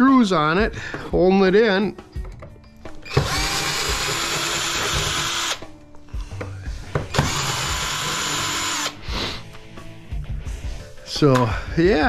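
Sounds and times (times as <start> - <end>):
cordless drill running: 3.0 - 5.6, 7.1 - 9.0.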